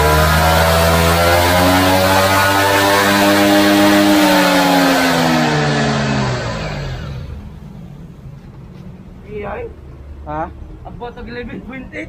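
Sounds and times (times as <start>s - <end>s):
scooter engine revving: 0.0s - 8.1s.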